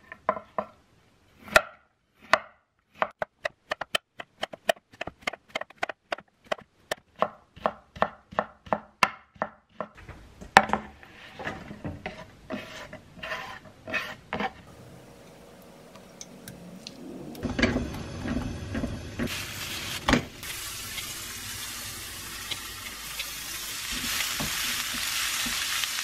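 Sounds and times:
knife chopping on wooden board: 1.4 - 10.0.

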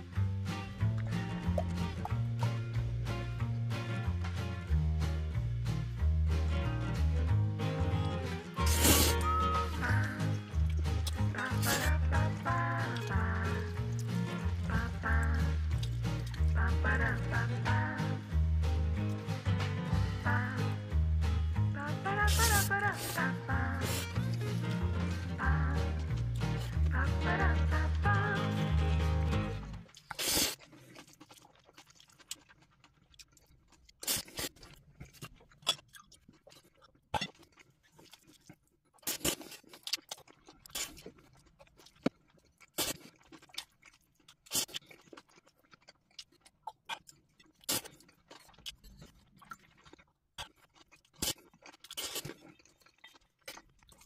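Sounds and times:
chewing with clicks and smacks: 8.3 - 17.3, 29.7 - 54.0.

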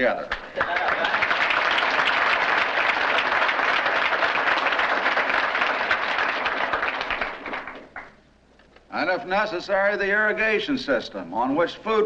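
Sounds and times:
audience applauding: 0.3 - 8.2.

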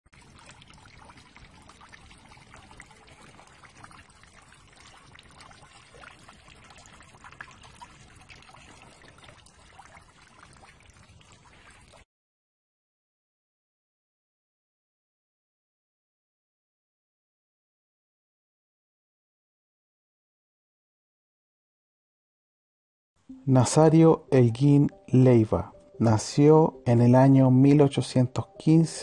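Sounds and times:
water trickling into a pond: 0.1 - 12.1, 23.3 - 29.0.

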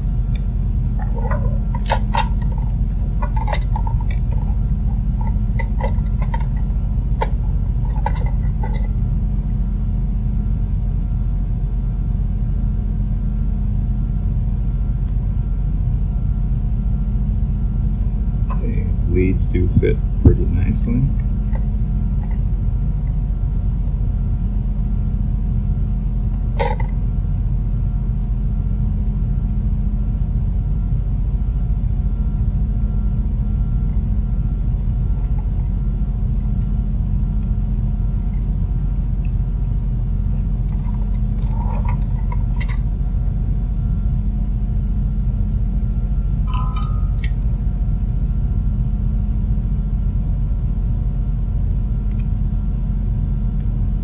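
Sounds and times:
low machine hum: 0.0 - 54.0
faint steady tones: 45.4 - 47.4.

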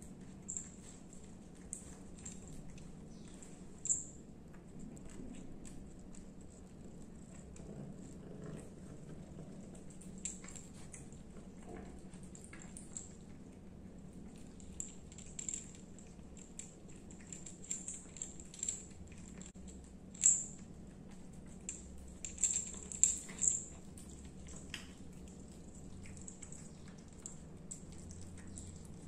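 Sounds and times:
cat chewing and licking: 0.0 - 29.0
cat collar bell jingling: 21.7 - 24.6.

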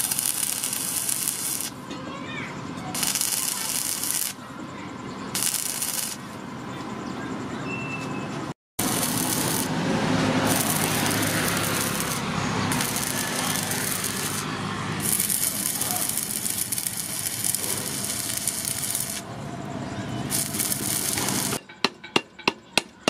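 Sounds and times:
welding arc crackling and hissing: 0.0 - 1.8, 2.9 - 4.4, 5.4 - 6.2, 8.8 - 19.3, 20.2 - 21.6.

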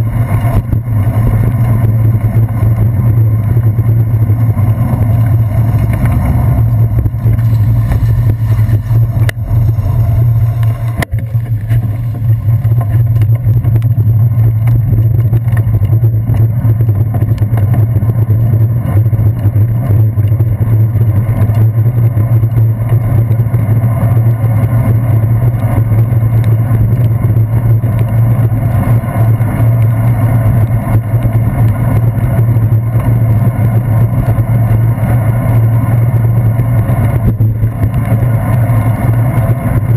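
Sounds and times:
low rumble of wind and road: 0.0 - 39.9.

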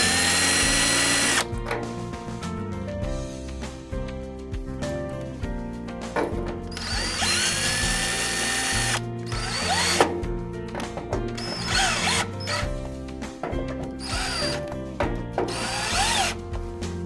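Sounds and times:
cordless drill driving screws: 0.0 - 1.5, 6.7 - 10.0, 11.4 - 12.7, 14.0 - 14.6, 15.5 - 16.4.

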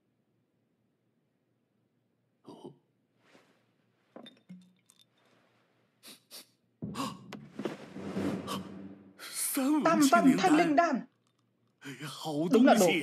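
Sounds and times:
porcelain bottle clinking: 4.1 - 5.3
person sniffing: 6.0 - 7.2.

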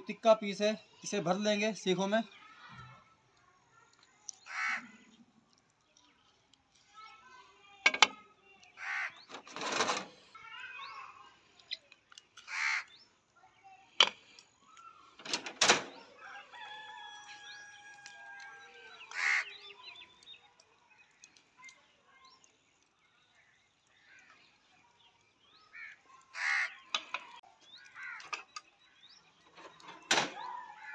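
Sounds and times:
birds calling harshly: 4.3 - 5.3, 8.1 - 30.9
crow call: 4.4 - 5.0, 8.8 - 9.2, 12.4 - 12.9, 19.0 - 19.6, 25.7 - 27.2
metal skewers clicking and scraping: 5.5 - 10.3, 26.3 - 28.8.

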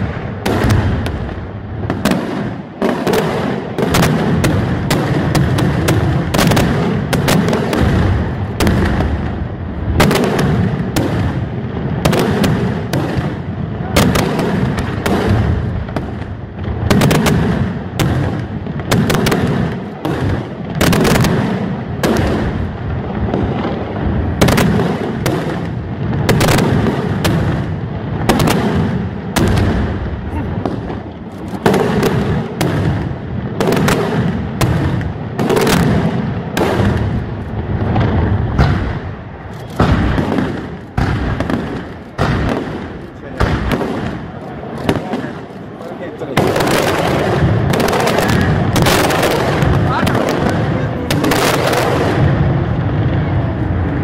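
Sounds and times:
fireworks bursting: 0.0 - 54.0.

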